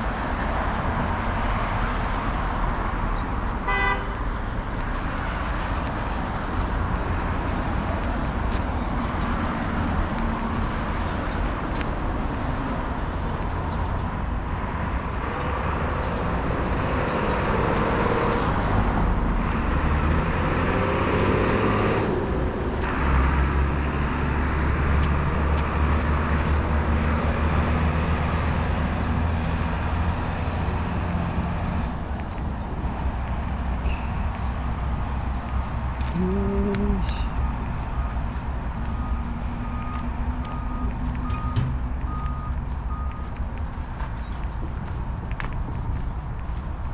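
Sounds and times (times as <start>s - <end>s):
road traffic passing: 0.0s - 46.9s
deep engine rumble: 22.1s - 46.9s.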